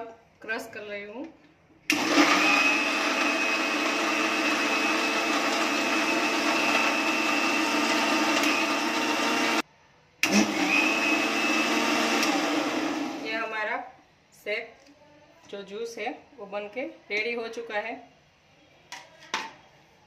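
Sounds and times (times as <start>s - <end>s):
mixer grinder crushing ice: 1.9s - 9.6s, 10.2s - 13.2s.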